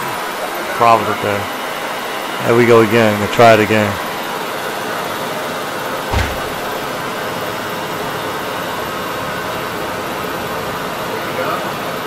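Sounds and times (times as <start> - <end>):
short low thump: 6.1 - 6.8.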